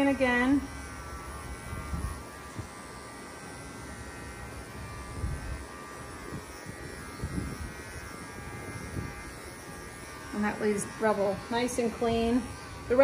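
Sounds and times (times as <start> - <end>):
electric clippers buzzing: 0.0 - 13.0.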